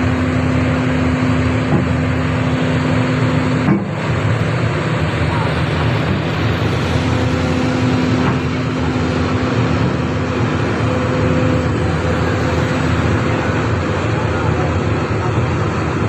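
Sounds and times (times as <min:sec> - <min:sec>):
excavator diesel engine rumble: 0:00.0 - 0:16.0
steady hydraulic hum: 0:00.0 - 0:16.0.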